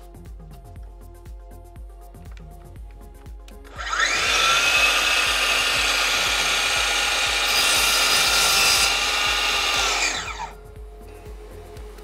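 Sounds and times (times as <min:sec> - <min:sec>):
mitre saw whining: 0:03.6 - 0:12.0
saw blade cutting wood: 0:03.8 - 0:10.6.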